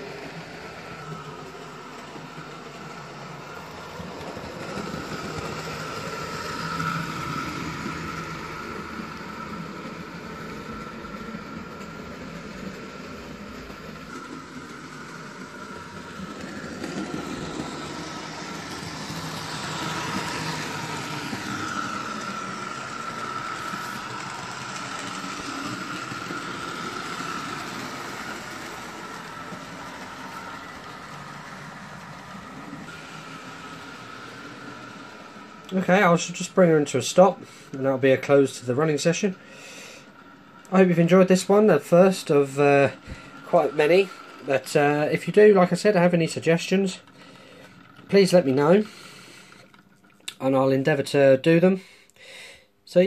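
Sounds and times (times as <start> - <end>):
wheels rumbling on track: 0.0 - 50.5
electric motor whine: 15.5 - 35.7.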